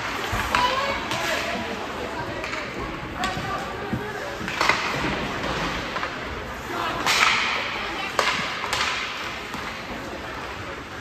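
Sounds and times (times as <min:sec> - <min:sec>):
voices in rink: 0:00.0 - 0:11.0
hockey stick and puck cracks: 0:04.4 - 0:06.3, 0:07.0 - 0:10.0.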